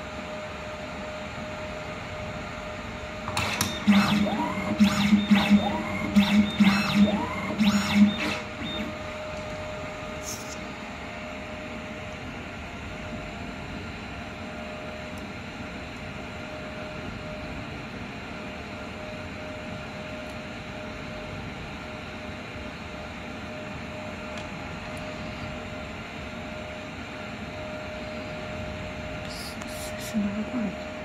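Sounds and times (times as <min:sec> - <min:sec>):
low hum with faint tone: 0:00.0 - 0:31.0
machine clacking: 0:03.3 - 0:08.9
buzzing motor: 0:03.3 - 0:09.0.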